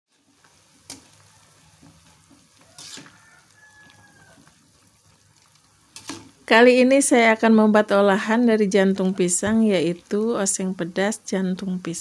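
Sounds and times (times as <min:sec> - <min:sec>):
water bubbling in a pot: 0:00.1 - 0:06.5.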